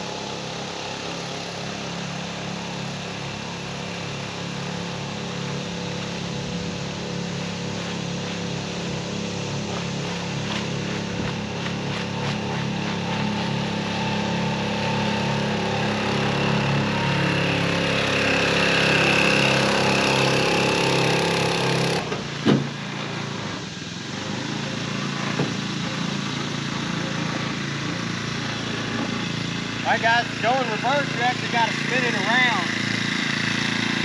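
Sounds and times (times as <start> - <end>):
outboard motor running: 0.0 - 34.0.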